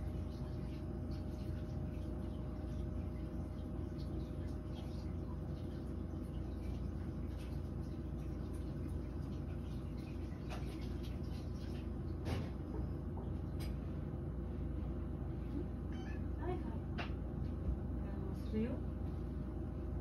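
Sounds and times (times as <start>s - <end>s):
fan heater humming: 0.0s - 20.0s.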